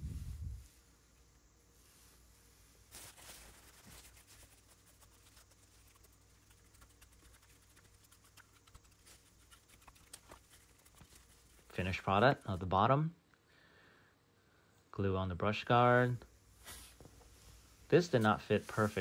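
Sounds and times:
cotton swab tapping and rustling: 0:02.9 - 0:12.6.

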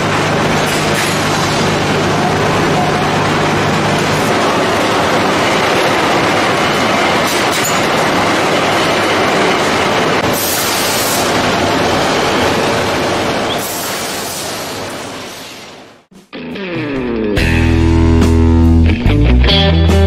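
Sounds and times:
steel rolling mill clatter and rumble: 0:00.0 - 0:15.4.

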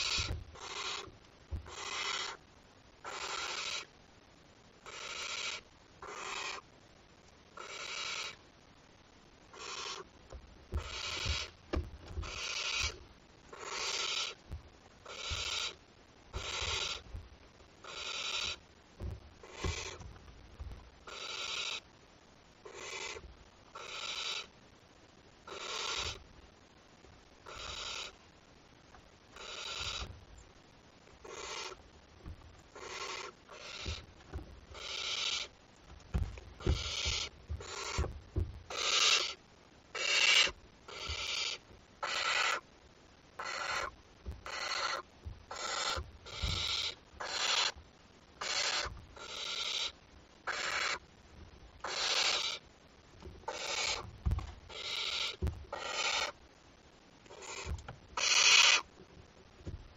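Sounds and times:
soft low thumps: 0:00.0 - 0:00.6, 0:01.5 - 0:01.8, 0:10.3 - 0:13.0, 0:14.4 - 0:15.5, 0:16.4 - 0:17.4, 0:19.0 - 0:21.0, 0:30.0 - 0:30.4, 0:32.2 - 0:32.6, 0:35.9 - 0:38.7, 0:44.2 - 0:44.5, 0:45.2 - 0:46.7, 0:53.2 - 0:54.7, 0:55.4 - 0:55.7, 0:59.2 - 0:59.9
owl chick rasping begging call: 0:00.0 - 0:02.4, 0:03.0 - 0:03.9, 0:04.8 - 0:06.7, 0:07.6 - 0:08.4, 0:09.5 - 0:10.1, 0:10.7 - 0:11.6, 0:12.2 - 0:14.4, 0:15.0 - 0:17.1, 0:17.8 - 0:18.6, 0:19.4 - 0:20.1, 0:21.1 - 0:21.9, 0:22.7 - 0:24.5, 0:25.5 - 0:26.2, 0:27.4 - 0:28.2, 0:29.4 - 0:30.1, 0:31.2 - 0:31.8, 0:32.8 - 0:34.1, 0:34.7 - 0:35.6, 0:36.6 - 0:42.7, 0:43.4 - 0:47.8, 0:48.4 - 0:51.1, 0:51.8 - 0:52.7, 0:53.5 - 0:56.4, 0:57.3 - 0:58.9.

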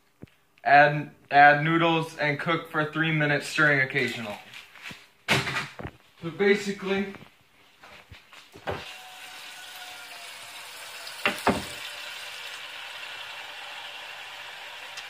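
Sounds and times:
tap water pouring into saucepan: 0:08.8 - 0:15.0.

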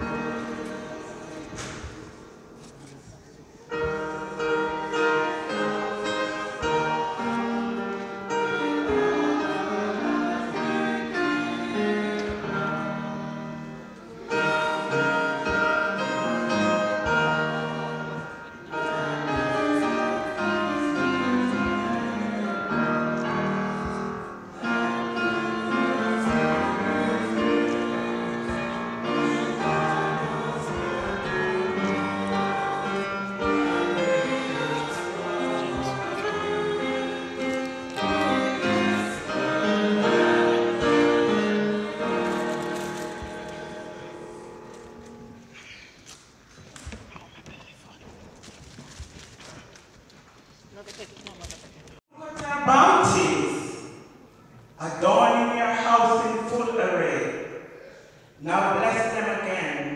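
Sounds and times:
choir singing: 0:00.0 - 0:02.6, 0:03.6 - 0:45.6
piano accompaniment: 0:00.0 - 0:02.6, 0:03.6 - 0:45.7.

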